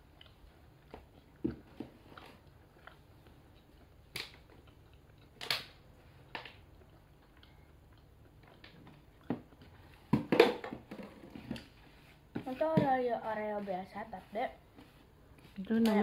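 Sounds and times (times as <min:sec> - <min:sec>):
quiet chewing: 0:00.0 - 0:10.1.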